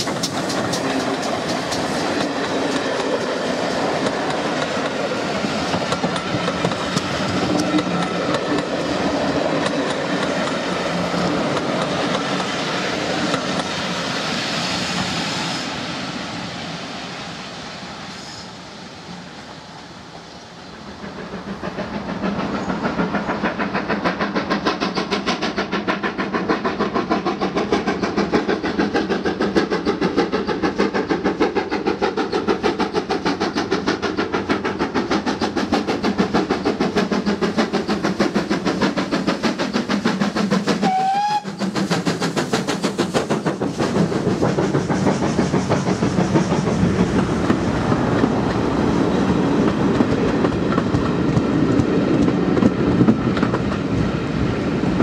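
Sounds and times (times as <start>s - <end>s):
wheels clacking over rail joints: 0.0s - 13.8s, 21.0s - 54.2s
steam locomotive exhaust beats: 0.0s - 55.0s
train whistle blast: 40.8s - 41.6s.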